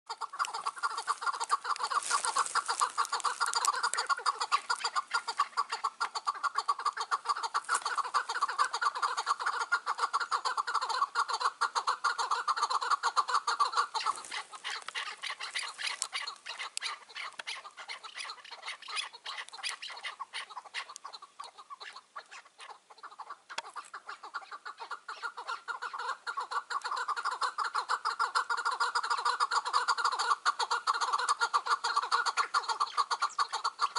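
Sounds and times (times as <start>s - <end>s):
partridges clucking: 0.1s - 9.7s.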